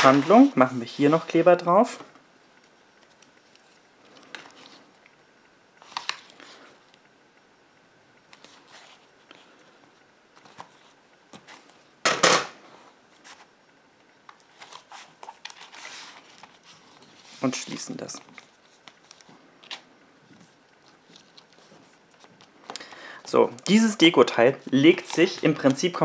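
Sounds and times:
paper rustling: 0.0s - 2.0s, 14.4s - 26.0s.

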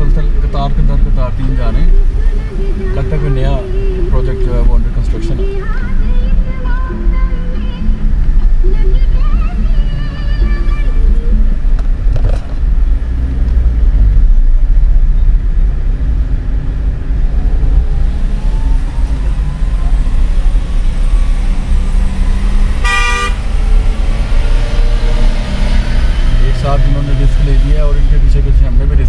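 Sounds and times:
car engine and road rumble: 0.0s - 29.0s
vehicle horn toot: 22.8s - 23.5s.

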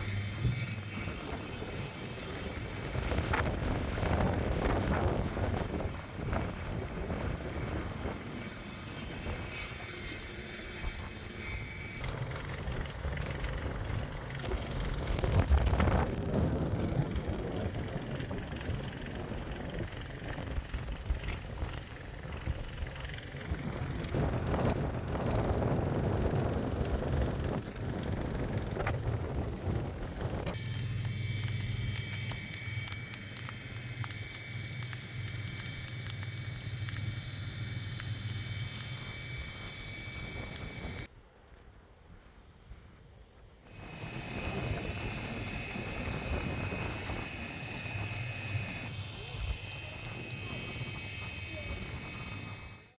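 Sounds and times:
engine running: 0.0s - 41.1s, 43.7s - 53.0s
wind buffeting microphone: 0.0s - 41.1s, 43.7s - 53.0s.

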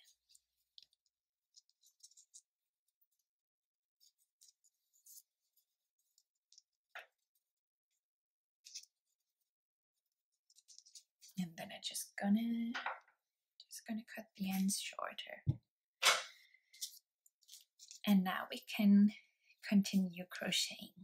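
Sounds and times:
fingers handling yarn: 0.0s - 3.3s, 3.9s - 11.6s, 16.7s - 18.2s.

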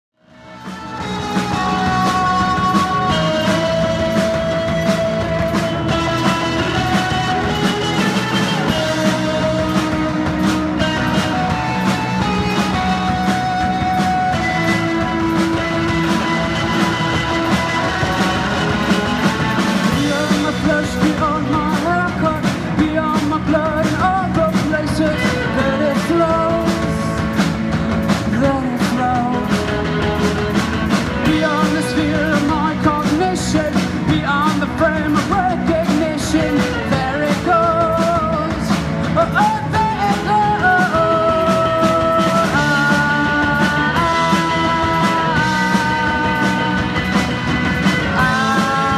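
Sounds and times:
live rock band playing: 0.2s - 48.9s
wavering lead melody: 0.4s - 22.1s.

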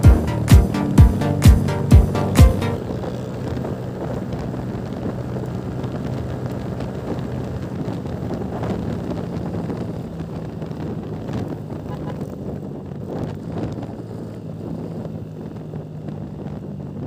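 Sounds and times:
music: 0.0s - 2.8s
motorcycle engine running: 0.0s - 17.0s
wind rushing over microphone: 2.8s - 17.0s.

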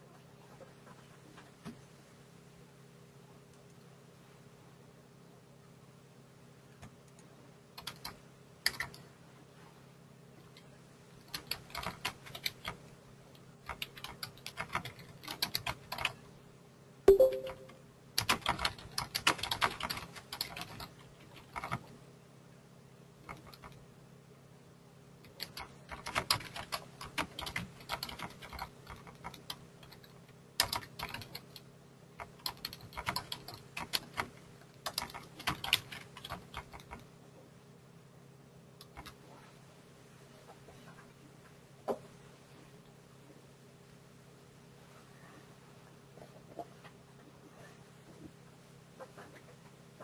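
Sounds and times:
typing on computer keyboard: 6.8s - 9.0s, 11.2s - 12.9s, 13.6s - 16.2s, 17.1s - 22.0s, 23.2s - 23.8s, 25.2s - 37.1s, 38.8s - 39.2s.

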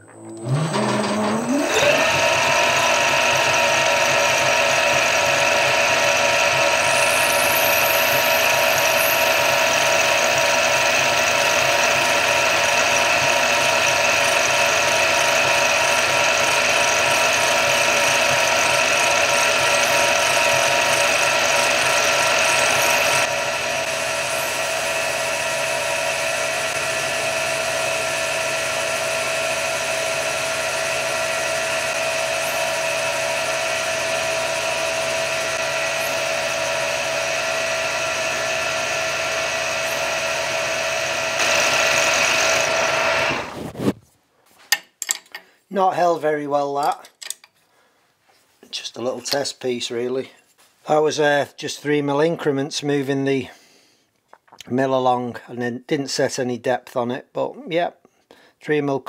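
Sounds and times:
milling machine whining: 0.0s - 44.0s.

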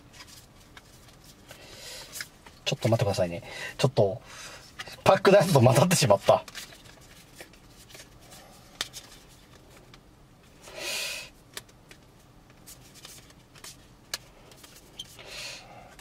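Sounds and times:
cards sliding rustle: 6.2s - 10.0s, 11.5s - 15.3s.

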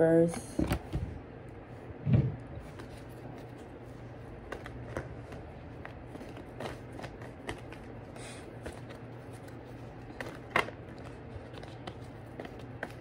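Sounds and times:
cards being shuffled: 2.6s - 13.0s.

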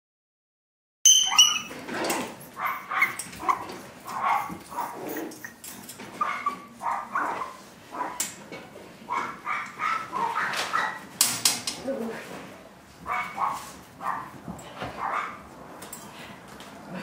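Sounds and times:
puppy yapping: 1.1s - 8.3s, 9.1s - 11.1s, 13.0s - 14.4s.

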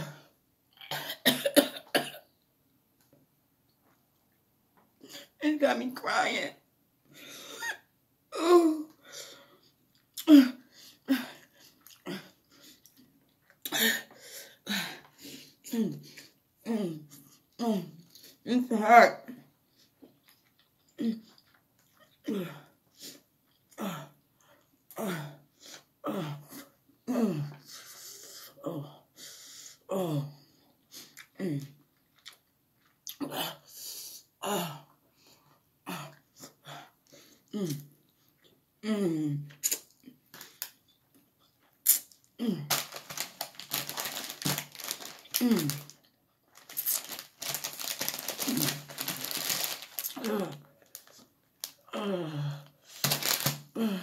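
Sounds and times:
chewing: 19.9s - 22.2s, 31.1s - 33.2s
person groaning in pain: 43.8s - 45.9s, 48.1s - 50.8s, 51.9s - 54.0s.

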